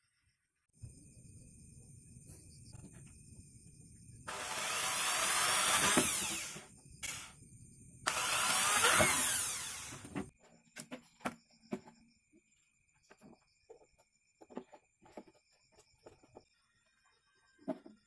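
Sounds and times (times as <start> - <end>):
electric drill boring through plastic: 4.3 - 7.4, 8.0 - 10.3.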